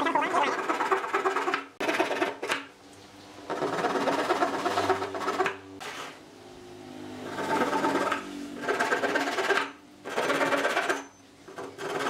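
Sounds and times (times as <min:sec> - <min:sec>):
handsaw rasping through wood: 0:00.2 - 0:02.6, 0:03.5 - 0:05.6, 0:07.3 - 0:12.0.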